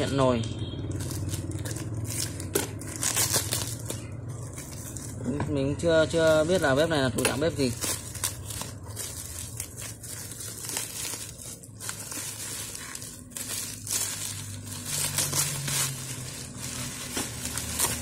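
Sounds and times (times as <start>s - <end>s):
bubble wrap crinkling: 0.8s - 18.0s.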